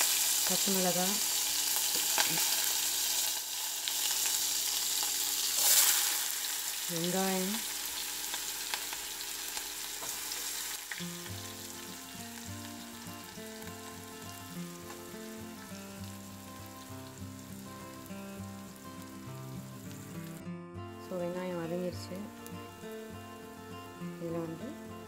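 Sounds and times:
onions sizzling in oil: 0.0s - 20.4s
background music with held notes: 10.8s - 25.0s.

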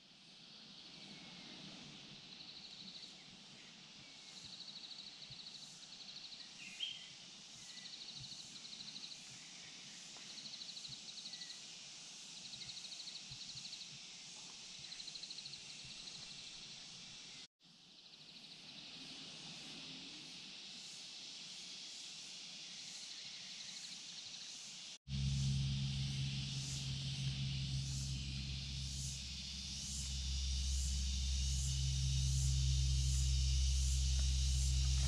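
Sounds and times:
steady outdoor hiss: 0.0s - 35.0s
animal pulsing trills: 25.1s - 35.0s.

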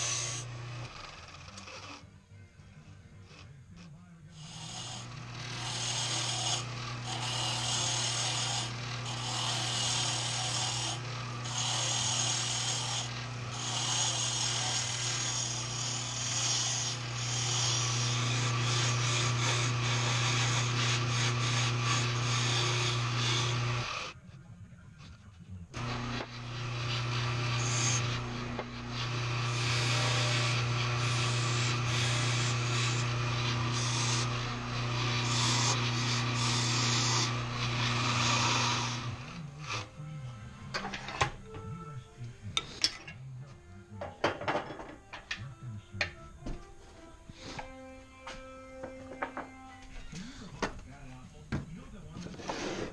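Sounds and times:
wood lathe humming: 0.0s - 2.0s, 3.2s - 24.2s, 25.8s - 40.0s
turning tool scraping wood: 0.0s - 2.1s, 3.1s - 24.2s, 25.0s - 39.9s, 47.3s - 47.8s, 52.0s - 52.9s.

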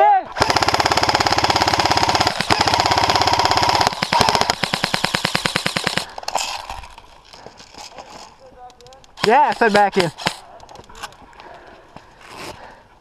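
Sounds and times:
airsoft gun full-auto burst: 0.4s - 6.1s, 9.2s - 10.4s
scattered clicks: 7.8s - 11.2s.

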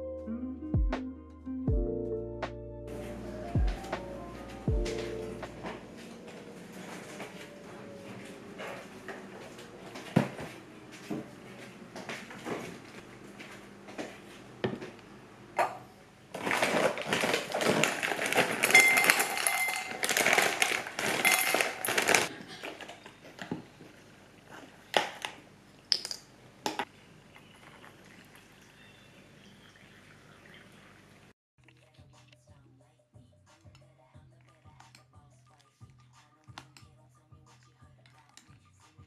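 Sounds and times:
cereal pouring into a bowl: 16.4s - 22.3s.

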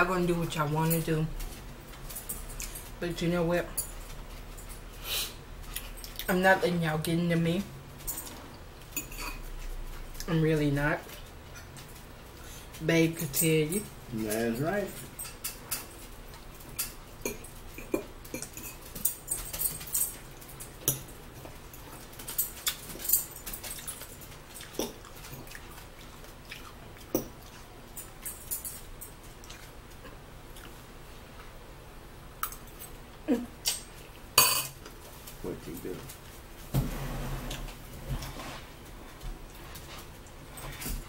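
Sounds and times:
chewing: 14.2s - 31.6s.

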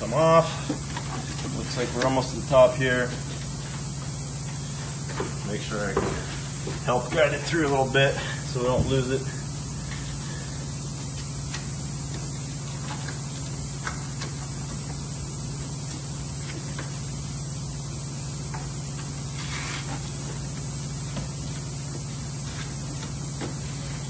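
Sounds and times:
low hum with hiss: 0.0s - 24.0s.

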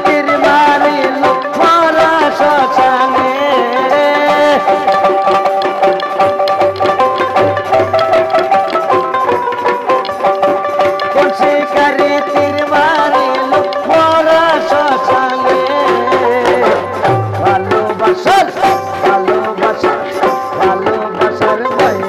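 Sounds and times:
barrel drum beat: 0.0s - 22.0s
harmonium: 0.0s - 22.0s
plucked lute: 0.0s - 22.0s.

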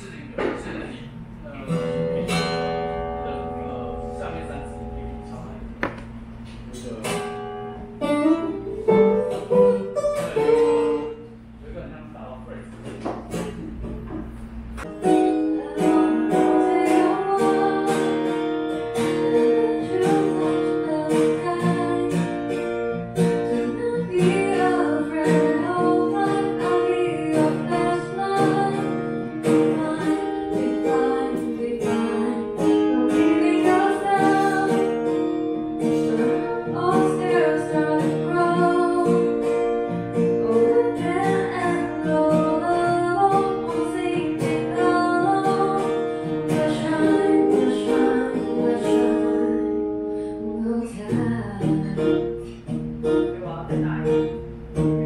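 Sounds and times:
acoustic guitar strumming: 0.0s - 11.8s, 12.5s - 55.0s
woman singing into microphone: 15.0s - 39.6s, 40.2s - 52.5s.

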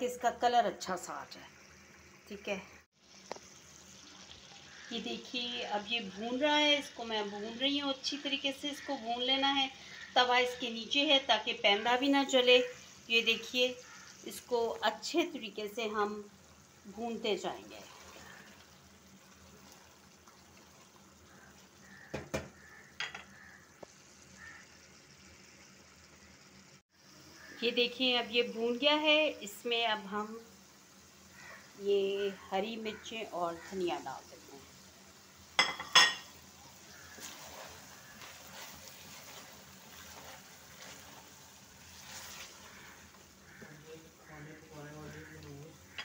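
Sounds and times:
curry sizzling in a pan: 0.0s - 46.0s
wooden spoon scraping a pan: 17.8s - 18.7s, 36.1s - 46.0s
metal clank on steel pot: 22.2s - 23.3s, 35.6s - 36.3s.

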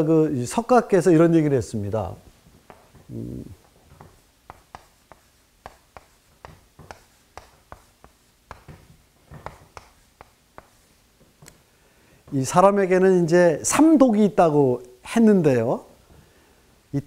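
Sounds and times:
chalk tapping and scraping: 2.6s - 11.6s.

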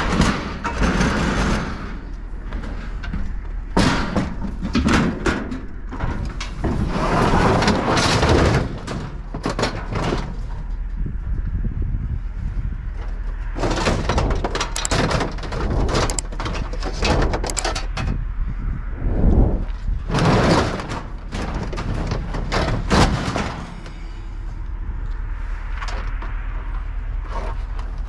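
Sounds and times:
truck tailgate clunks and rattles: 0.0s - 10.7s, 13.6s - 18.2s, 20.0s - 24.0s.

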